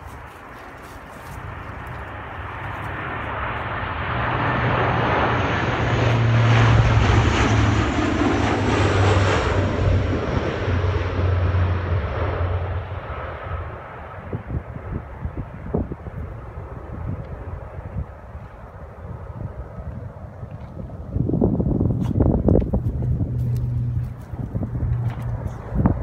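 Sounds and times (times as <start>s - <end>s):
propeller plane flying overhead: 0.0s - 26.0s.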